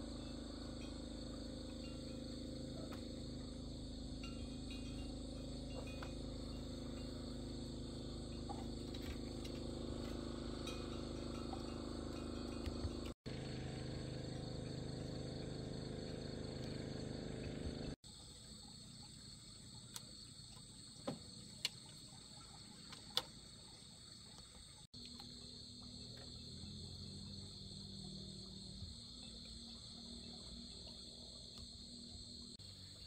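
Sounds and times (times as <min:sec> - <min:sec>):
low hum: 0:00.0 - 0:18.0
night insects chorus: 0:00.0 - 0:33.0.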